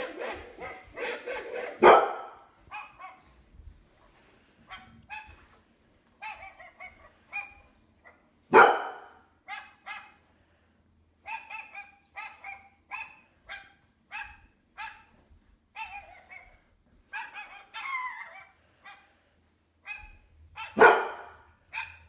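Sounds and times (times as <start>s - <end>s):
dog barking through laptop speakers: 0.0s - 3.3s, 4.7s - 5.5s, 6.2s - 10.2s, 11.2s - 15.2s, 15.8s - 19.0s, 19.8s - 22.0s.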